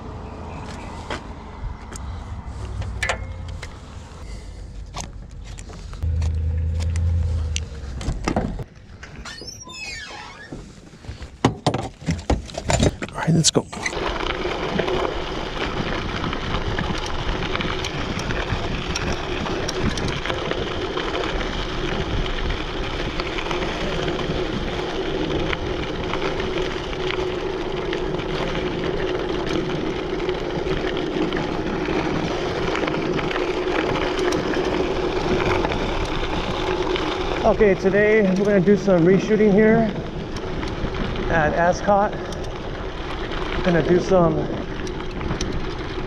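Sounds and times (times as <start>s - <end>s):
bike tyres on loose dirt: 0.0s - 46.0s
low steady hum: 5.9s - 8.6s
small clicks and rattles: 32.7s - 46.0s.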